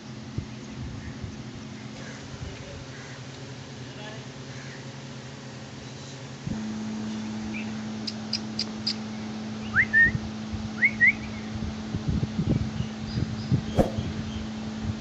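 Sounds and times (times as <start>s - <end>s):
steady low hum: 13.6s - 14.9s.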